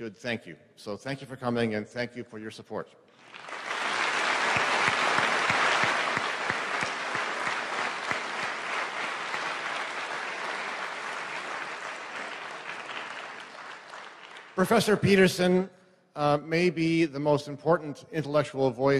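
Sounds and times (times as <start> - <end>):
large audience applauding: 3.2 - 14.9.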